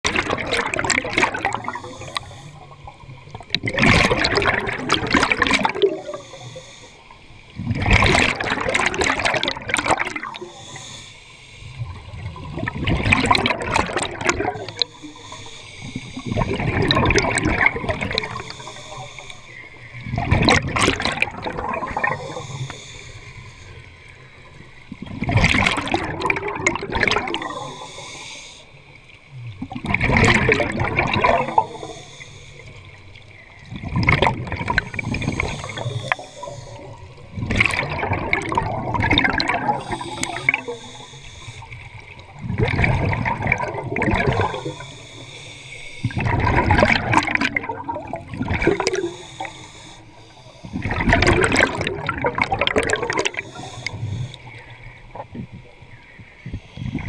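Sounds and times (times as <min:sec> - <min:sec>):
underwater bubbling: 0:00.0 - 0:57.0
breathing hiss: 0:01.6 - 0:02.9, 0:05.8 - 0:07.6, 0:10.2 - 0:12.4, 0:14.4 - 0:17.4, 0:18.0 - 0:20.0, 0:21.2 - 0:24.7, 0:27.3 - 0:29.2, 0:31.3 - 0:33.7, 0:34.7 - 0:37.3, 0:39.4 - 0:42.3, 0:44.2 - 0:46.2, 0:48.6 - 0:51.1, 0:53.1 - 0:55.1, 0:56.0 - 0:57.0.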